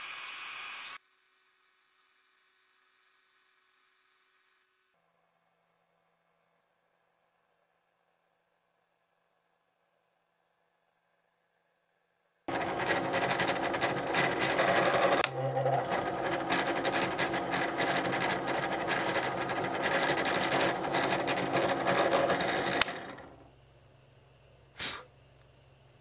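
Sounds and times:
drill press drilling metal: 12.5s - 23.4s
motor spinning down: 12.5s - 23.5s.

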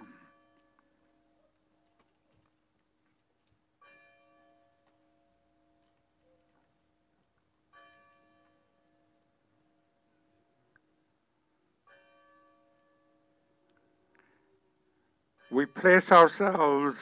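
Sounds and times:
church bell tolling: 11.8s - 13.6s, 15.4s - 17.0s.

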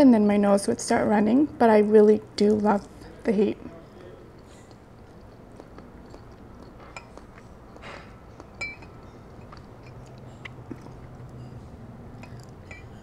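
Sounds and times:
ceramic dish clinking: 6.0s - 13.0s.

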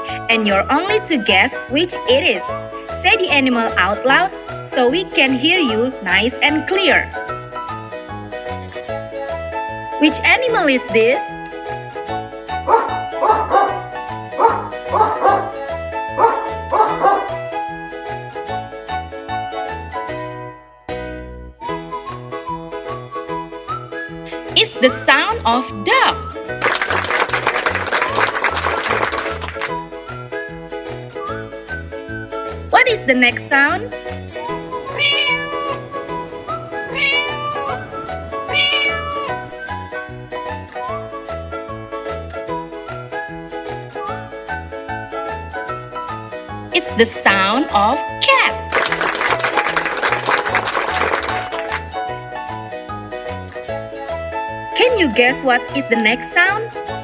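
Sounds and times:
dog barking: 12.7s - 15.6s, 16.2s - 17.4s
cat meowing: 34.8s - 39.5s.

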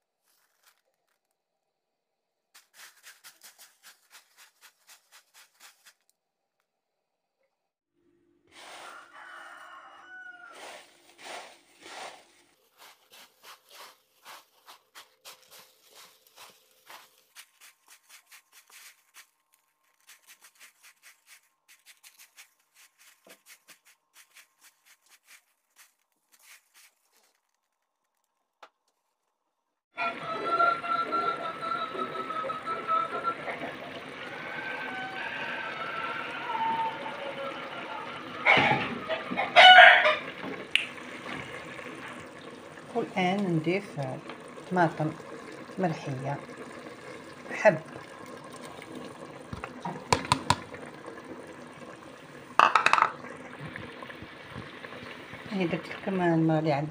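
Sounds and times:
animal call with gliding pitch: 30.0s - 40.2s.

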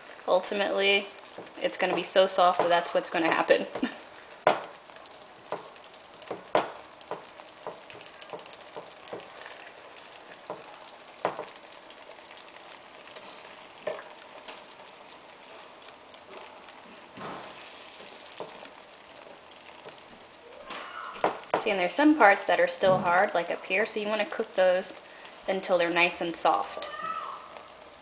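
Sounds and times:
food sizzling in a frying pan: 0.0s - 28.0s
spatula knocking against pan: 1.3s - 2.9s, 3.8s - 4.8s, 5.5s - 9.3s, 10.4s - 11.6s.

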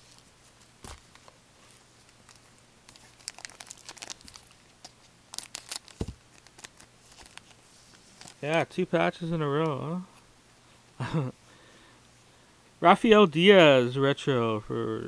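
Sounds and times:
wrappers and cards crinkling: 0.0s - 8.8s.

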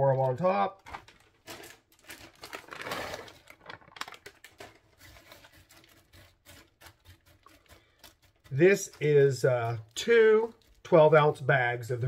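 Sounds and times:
plastic rustling: 0.0s - 11.2s.

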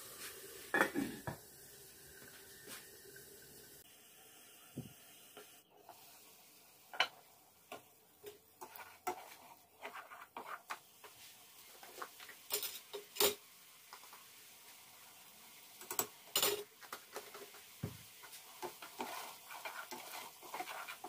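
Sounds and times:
spoon scraping saucepan: 7.0s - 13.4s, 18.2s - 21.0s.

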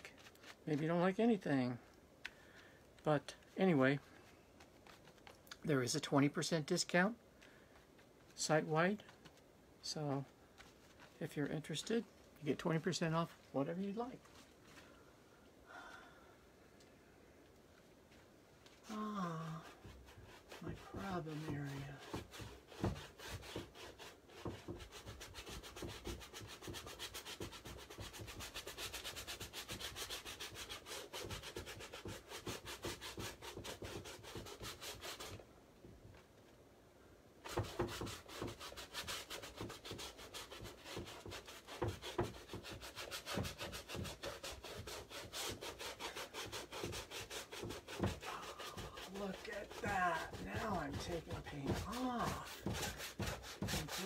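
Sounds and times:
paintbrush scrubbing on canvas: 0.0s - 1.1s, 18.9s - 35.4s, 37.4s - 54.0s.

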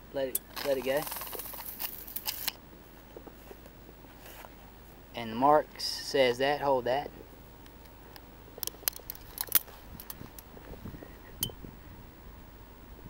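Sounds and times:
tape measure clicks and rattles: 0.3s - 2.6s.

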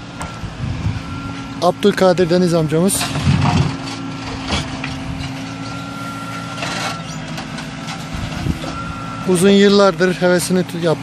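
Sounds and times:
diesel engine running: 0.0s - 11.0s
rustling and scraping: 2.9s - 5.8s, 6.4s - 8.8s.

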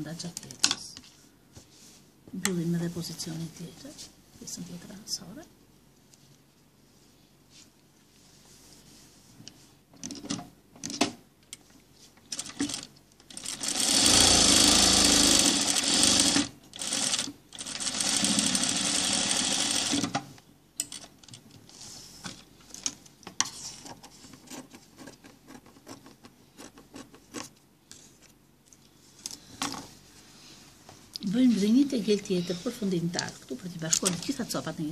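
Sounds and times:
sewing machine stitching: 12.3s - 20.2s.

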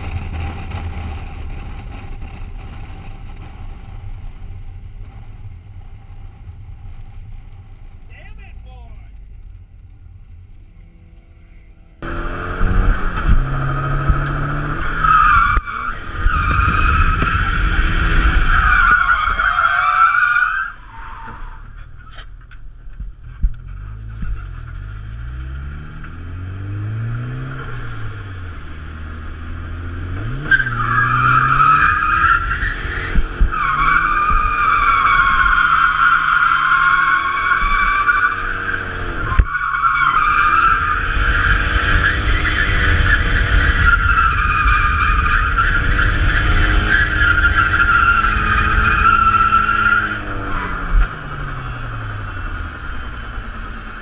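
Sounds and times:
tires squealing: 0.0s - 22.6s, 23.2s - 54.0s
car engine revving hard: 12.0s - 18.6s, 24.8s - 39.4s, 40.2s - 53.9s.

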